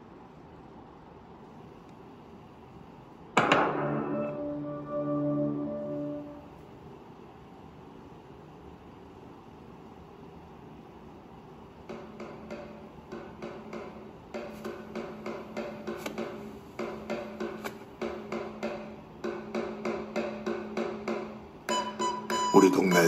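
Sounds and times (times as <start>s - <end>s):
drum beating: 12.0s - 21.8s.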